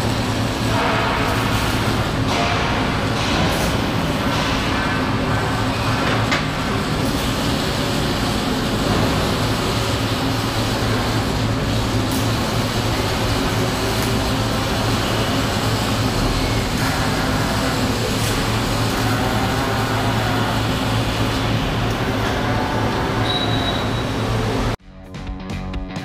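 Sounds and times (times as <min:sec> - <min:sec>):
machinery noise: 0:00.0 - 0:24.8.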